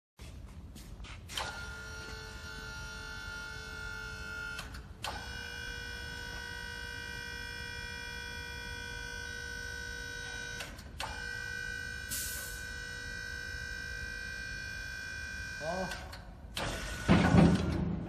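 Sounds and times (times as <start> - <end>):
hydraulic pump whining: 1.3 - 18.0.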